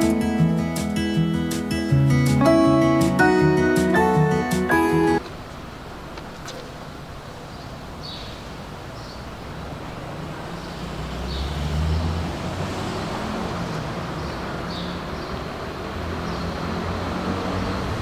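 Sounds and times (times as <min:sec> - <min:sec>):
steady hum of cars: 0:05.0 - 0:18.0
vehicle rumbling past: 0:09.1 - 0:18.0.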